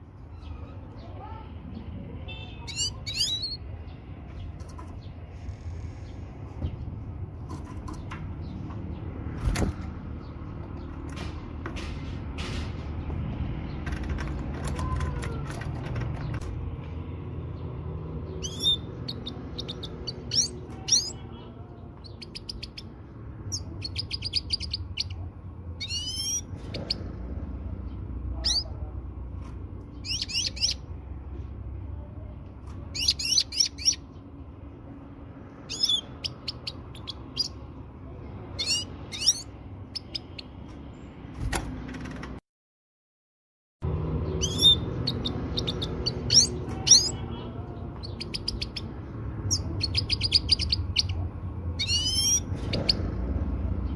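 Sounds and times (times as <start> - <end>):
finch twittering and chirping: 2.3 - 6.9, 18.2 - 25.2, 25.8 - 27.1, 27.9 - 28.8, 29.9 - 31.0, 32.7 - 34.3, 35.6 - 37.7, 38.5 - 40.6, 44.2 - 53.2.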